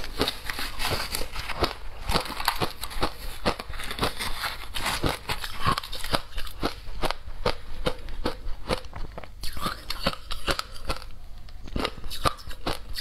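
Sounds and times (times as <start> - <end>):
shaved ice crunching: 0.0 - 6.5.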